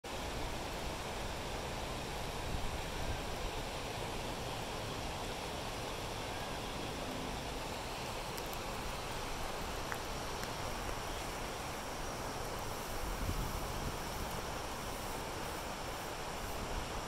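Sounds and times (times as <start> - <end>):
flooded creek rushing: 0.1 - 17.0.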